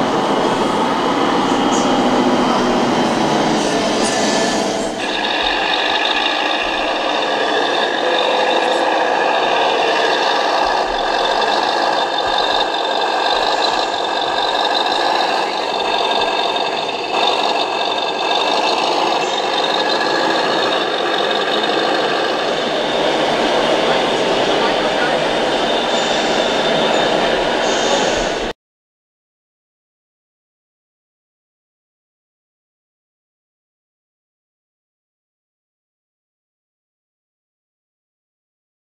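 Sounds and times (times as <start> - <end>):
simulated diesel truck engine: 0.0 - 28.6.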